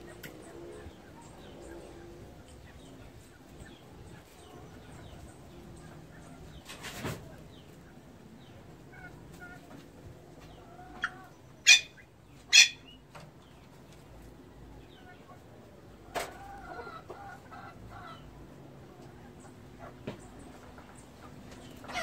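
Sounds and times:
pheasants calling: 0:00.0 - 0:22.0.

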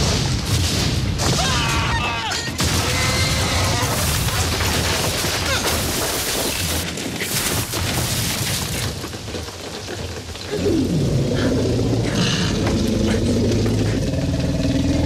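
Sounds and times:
wooden shelter smashing: 0:00.0 - 0:11.0
heavy rain downpour: 0:01.5 - 0:15.0.

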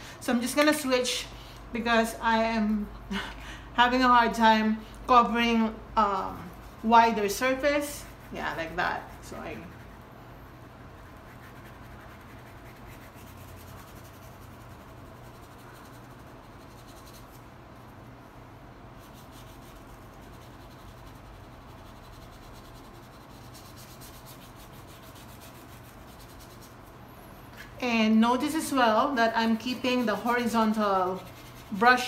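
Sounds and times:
paintbrush scratchy rubbing: 0:06.2 - 0:10.1, 0:11.0 - 0:17.5, 0:19.0 - 0:27.0, 0:28.5 - 0:32.0.

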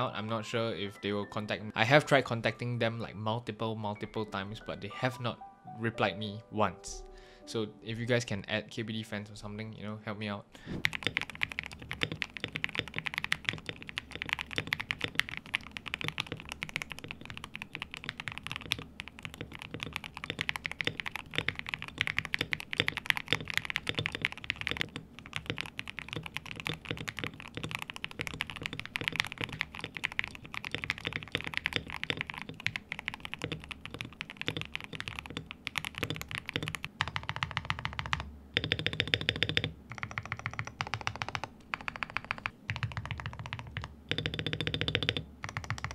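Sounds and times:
mechanical keyboard typing: 0:10.8 - 0:45.9.

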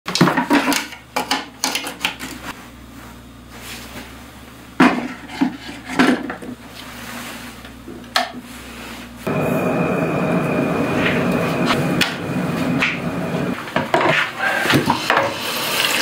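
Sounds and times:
hard objects clattering and knocking: 0:00.1 - 0:02.4.

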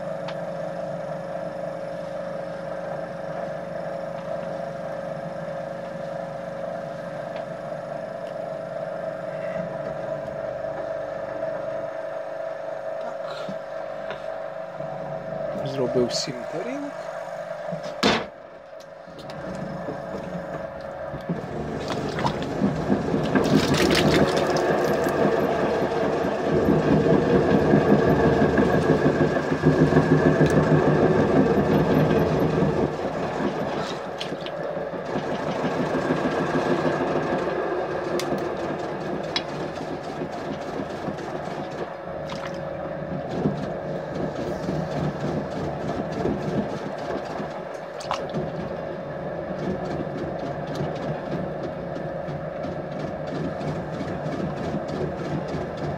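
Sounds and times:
potter's wheel motor hum: 0:00.0 - 0:55.9
wet clay worked by hand: 0:19.2 - 0:31.3.

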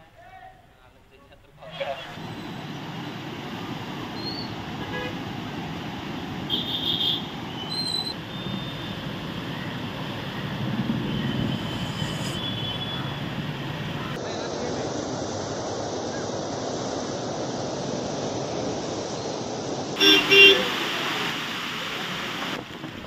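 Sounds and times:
outdoor traffic noise: 0:01.2 - 0:23.0
vehicle horns tooting: 0:04.8 - 0:05.2, 0:06.5 - 0:08.9, 0:11.2 - 0:13.3, 0:20.0 - 0:20.8.

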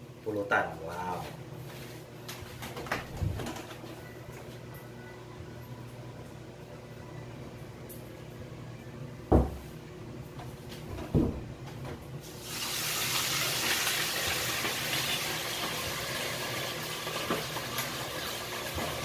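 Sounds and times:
meat sizzling in hot oil: 0:12.2 - 0:19.0.

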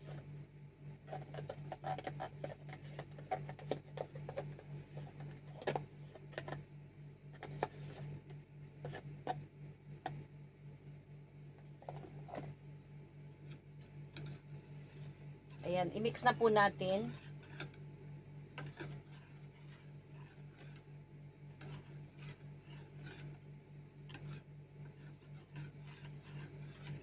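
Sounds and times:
clicks taps and scraping: 0:01.0 - 0:06.7, 0:07.3 - 0:09.4, 0:11.5 - 0:15.8, 0:17.1 - 0:20.9, 0:21.5 - 0:27.0.

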